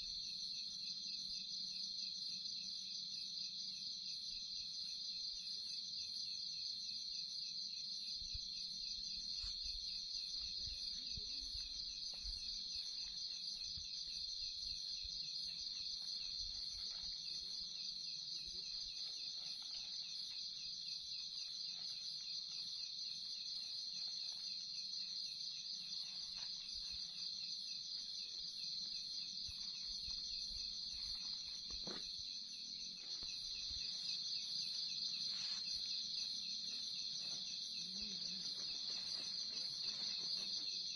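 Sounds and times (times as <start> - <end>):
insect chorus trilling: 0.0 - 40.9.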